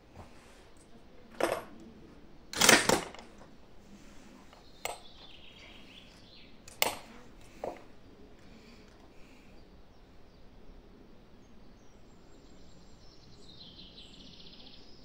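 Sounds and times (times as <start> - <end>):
gunshots: 2.6 - 3.3.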